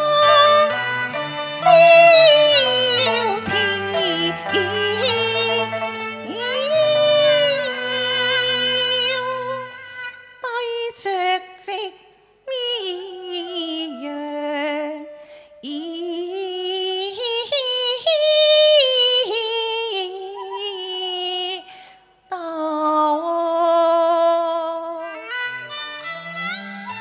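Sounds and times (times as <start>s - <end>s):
woman singing opera: 0.0s - 0.8s, 1.5s - 9.6s, 10.4s - 21.7s, 22.3s - 25.2s
low instrumental notes: 0.0s - 7.8s.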